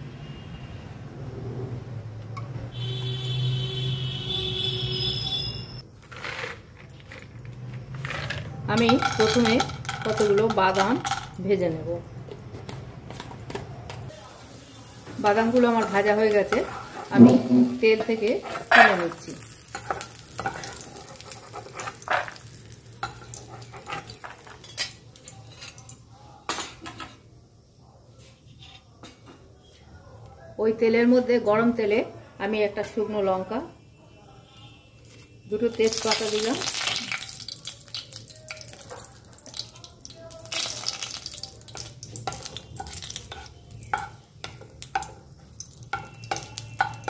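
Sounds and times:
peanuts sizzling in hot oil: 6.1s - 12.2s, 14.1s - 26.1s, 35.5s - 47.0s
ladle scraping and clinking on metal: 15.8s - 22.4s.

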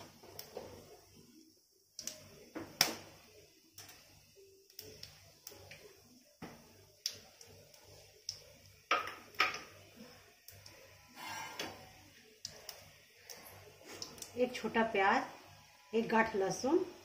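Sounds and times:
kitchenware clinking and knocking: 8.9s - 9.7s.

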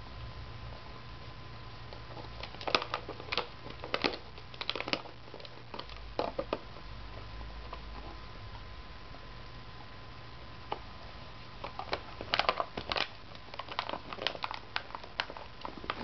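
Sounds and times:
plastic cup crackling and clicking: 1.9s - 6.8s, 11.6s - 16.0s.

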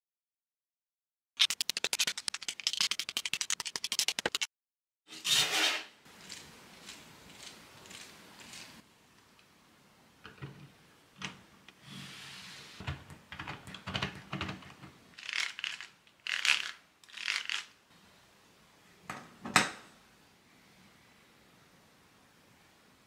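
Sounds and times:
plastic parts clicking and rattling: 13.3s - 17.7s.

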